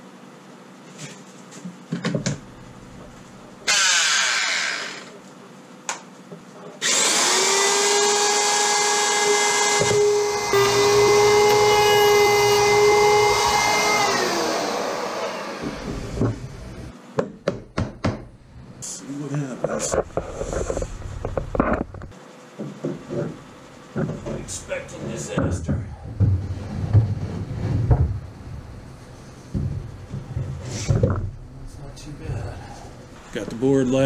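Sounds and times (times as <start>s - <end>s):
electric router cutting wood: 3.7s - 5.1s, 6.8s - 16.5s.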